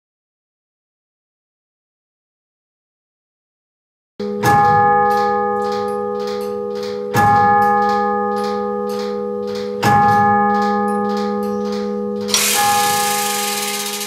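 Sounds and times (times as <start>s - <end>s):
clock bell striking: 4.2s - 14.0s.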